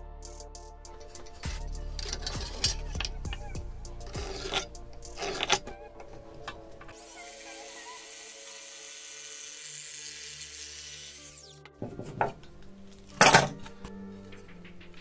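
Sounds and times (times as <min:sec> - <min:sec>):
background music: 0:00.0 - 0:15.0
tools clattering on workbench: 0:13.2 - 0:13.7.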